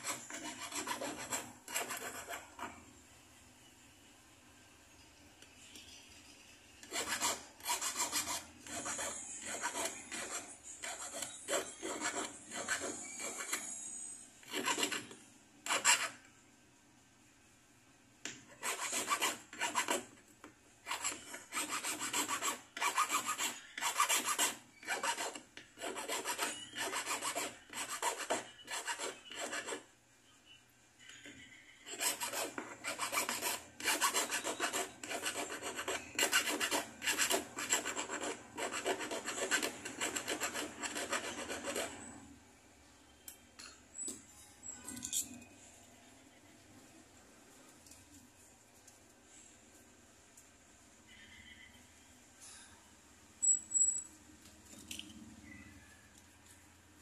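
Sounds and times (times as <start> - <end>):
hand file rasping on metal: 0.0 - 2.7, 6.8 - 13.7, 14.4 - 16.2, 18.5 - 20.1, 20.8 - 29.9, 31.9 - 42.1.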